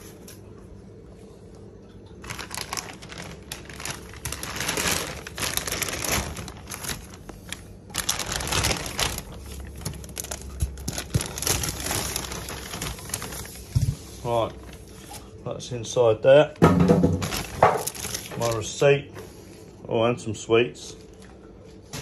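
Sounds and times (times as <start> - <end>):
packing material rustling: 2.2 - 15.3, 16.9 - 18.7.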